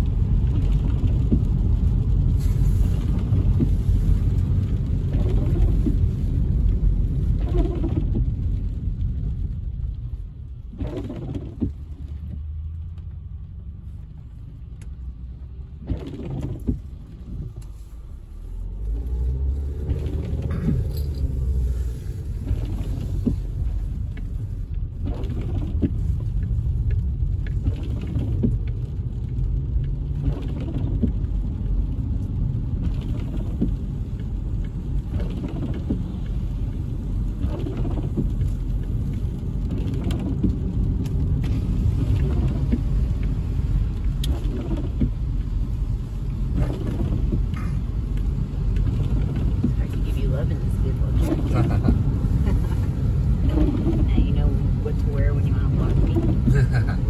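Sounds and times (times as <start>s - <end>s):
car road and engine rumble: 0.0s - 57.0s
windshield wipers swishing: 0.0s - 57.0s
tyres hissing on wet pavement: 1.4s - 9.6s, 17.6s - 24.7s.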